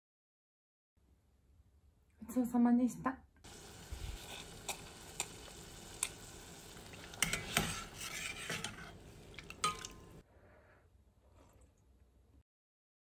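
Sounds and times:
steady hiss: 0:03.5 - 0:07.3
ladle clinking against pot: 0:07.2 - 0:10.2.

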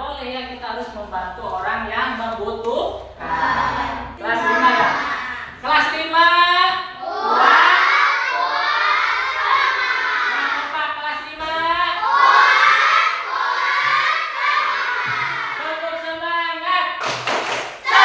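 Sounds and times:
children shouting in unison: 0:03.2 - 0:05.6, 0:07.0 - 0:10.7, 0:12.0 - 0:15.6.

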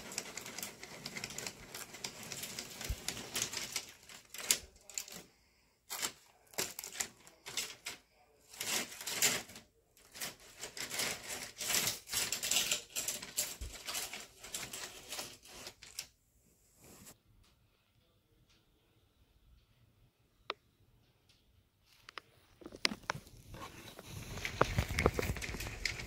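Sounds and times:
rapid clicking and clattering: 0:00.0 - 0:05.2.

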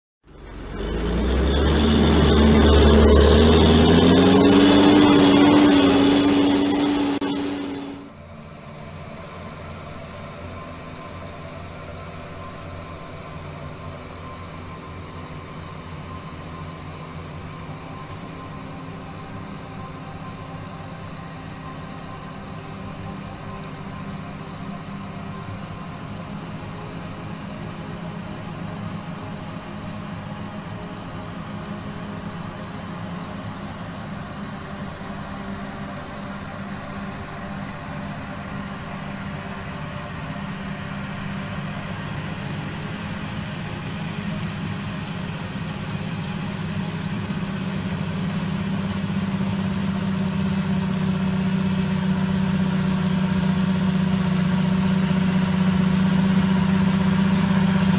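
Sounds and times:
tractor diesel engines droning: 0:00.2 - 0:57.9.

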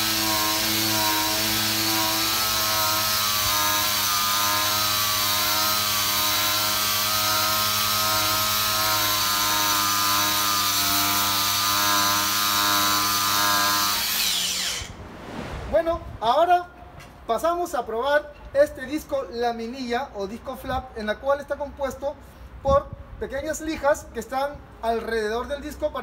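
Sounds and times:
angle grinder motor whine: 0:12.6 - 0:14.9.

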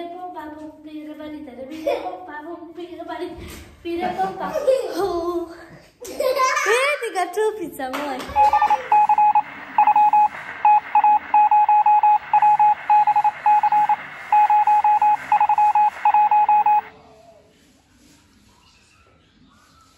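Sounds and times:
short electronic beeps: 0:08.4 - 0:16.9.

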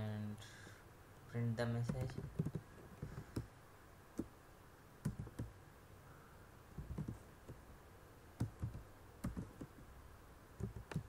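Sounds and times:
computer keyboard keystrokes: 0:01.8 - 0:03.5, 0:05.0 - 0:05.5, 0:06.8 - 0:07.2, 0:08.4 - 0:09.8, 0:10.6 - 0:11.0.

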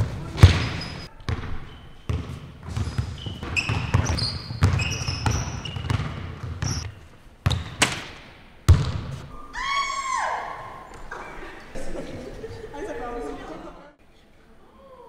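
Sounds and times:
sneaker squeaks: 0:00.0 - 0:07.9
ball hitting basket: 0:00.4 - 0:06.8, 0:07.4 - 0:09.3
basketball dribbling on hardwood: 0:02.1 - 0:07.9.

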